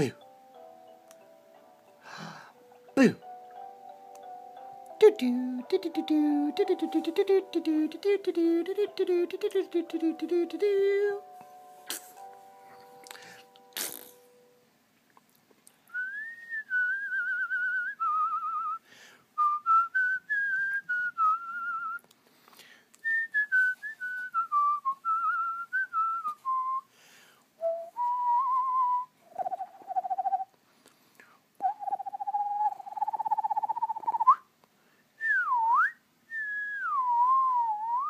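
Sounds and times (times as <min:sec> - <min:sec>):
person whistling a tune: 0:05.6 - 0:11.0, 0:15.9 - 0:18.8, 0:19.4 - 0:22.0, 0:23.0 - 0:26.9, 0:27.6 - 0:29.2, 0:35.2 - 0:38.0.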